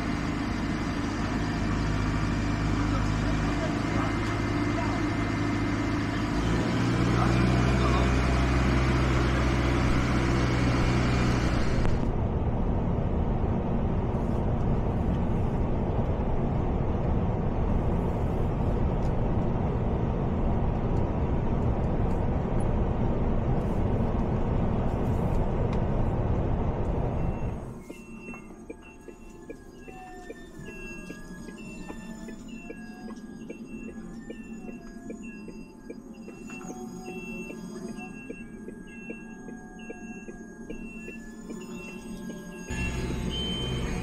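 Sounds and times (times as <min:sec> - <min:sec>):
diesel engine running: 0:00.0 - 0:44.0
tyre and wind noise in cab: 0:11.0 - 0:28.5.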